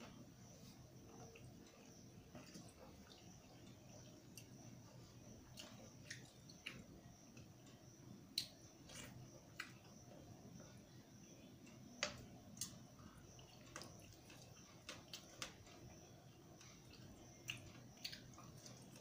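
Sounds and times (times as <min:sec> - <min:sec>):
faint steady hum: 0:00.0 - 0:19.0
eating clicks and mouth smacks: 0:08.4 - 0:09.9, 0:16.6 - 0:19.0.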